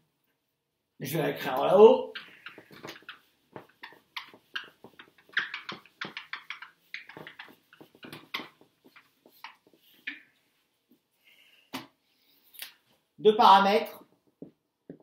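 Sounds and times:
hand rubbing whiteboard: 0:02.1 - 0:10.8.

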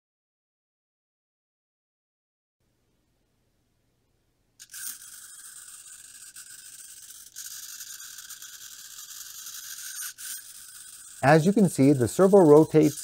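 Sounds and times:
servo motor gears whirring: 0:04.6 - 0:13.0.

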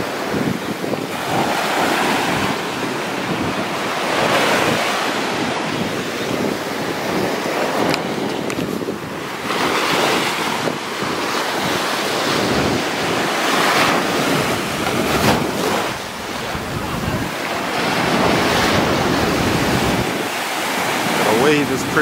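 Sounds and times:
small waves breaking on sand: 0:00.0 - 0:22.0
wind buffeting microphone: 0:00.0 - 0:22.0.

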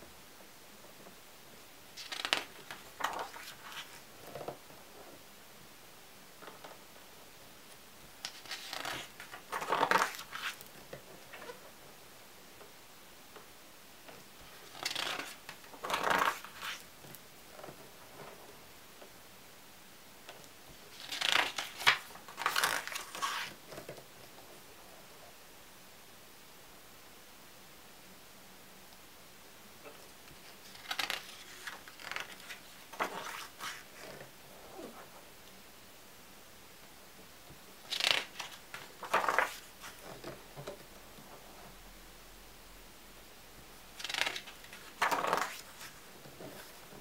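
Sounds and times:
page turning swish: 0:02.0 - 0:04.0, 0:08.3 - 0:10.6, 0:14.7 - 0:16.8, 0:21.0 - 0:23.6, 0:30.6 - 0:34.1, 0:37.9 - 0:40.3, 0:44.0 - 0:46.8
paper rustle: 0:02.0 - 0:04.0, 0:08.2 - 0:11.6, 0:14.4 - 0:16.9, 0:20.9 - 0:23.9, 0:30.4 - 0:34.2, 0:37.9 - 0:40.7, 0:44.0 - 0:47.0.

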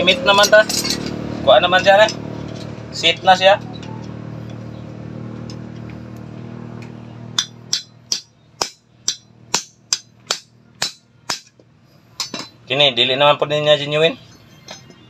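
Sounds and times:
metal-on-metal hammer strikes: 0:07.3 - 0:11.6, 0:12.2 - 0:12.6.

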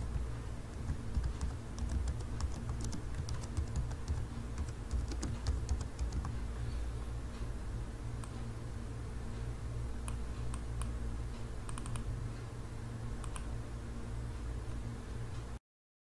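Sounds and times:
low electrical hum: 0:00.0 - 0:15.6
mouse and keyboard clicks: 0:11.7 - 0:12.1, 0:13.2 - 0:13.5.

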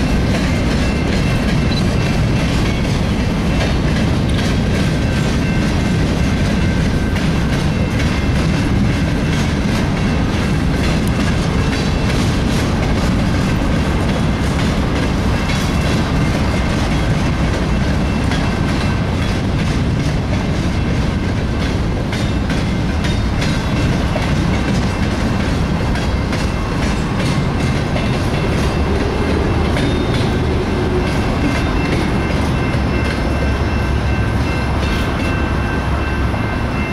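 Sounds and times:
freight train wheels rumbling: 0:00.0 - 0:36.9.

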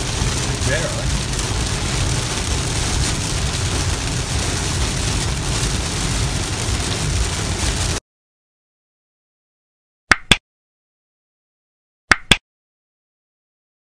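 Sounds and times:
heavy rain on a car: 0:00.0 - 0:08.0
low road rumble: 0:00.0 - 0:08.0.

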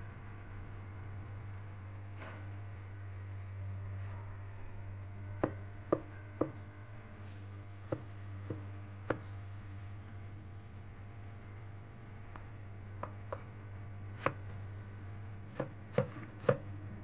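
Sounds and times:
knife chopping on cutting board: 0:15.5 - 0:16.6.

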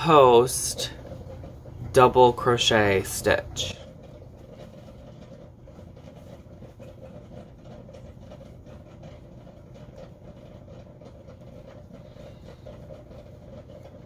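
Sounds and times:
crochet hook rustling yarn: 0:00.0 - 0:10.4
low background hum: 0:00.0 - 0:14.0.

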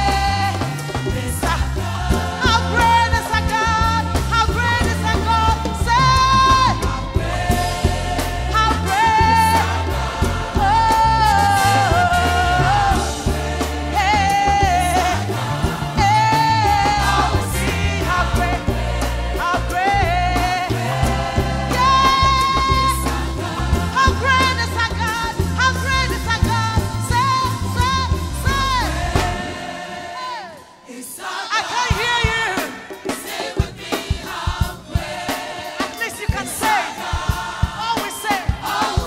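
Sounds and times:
woman singing into microphone: 0:00.0 - 0:01.8, 0:02.4 - 0:07.6, 0:08.5 - 0:18.7, 0:19.4 - 0:23.3, 0:23.9 - 0:29.4
heavy bass line: 0:00.0 - 0:29.6
keyboards: 0:00.0 - 0:30.3
backing singer: 0:00.0 - 0:39.0.

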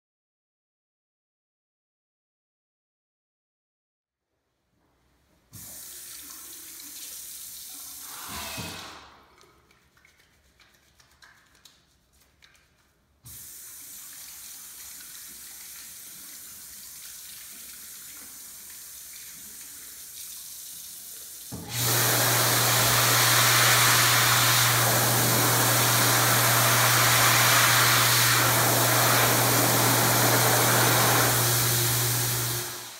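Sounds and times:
tap water running onto hands: 0:09.4 - 0:32.8
hand dryer rushing air: 0:21.5 - 0:32.9.

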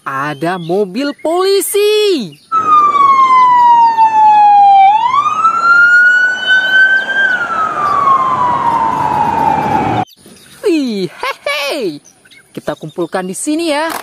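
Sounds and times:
police siren wailing: 0:02.5 - 0:10.1.

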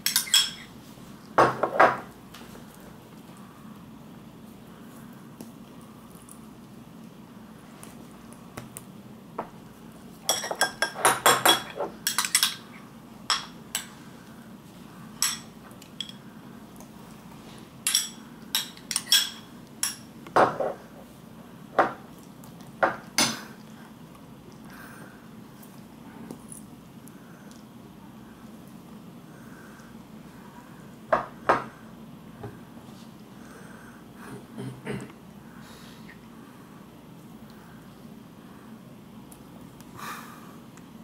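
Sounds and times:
cutlery clinking against dishes: 0:00.0 - 0:00.7, 0:10.3 - 0:12.7, 0:17.9 - 0:20.8.

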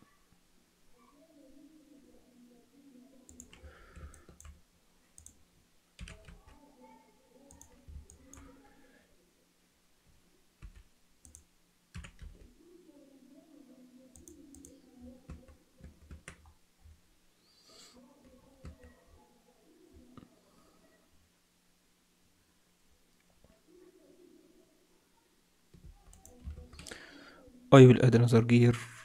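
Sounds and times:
mouse and keyboard clicks: 0:03.3 - 0:04.6, 0:07.5 - 0:08.5, 0:14.1 - 0:16.5, 0:25.8 - 0:26.9.

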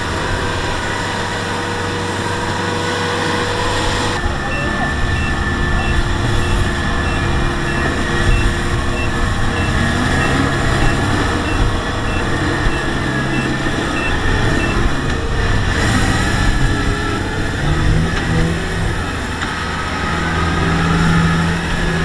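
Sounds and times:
diesel engine running: 0:00.0 - 0:22.0
short electronic beeps: 0:04.2 - 0:16.8.

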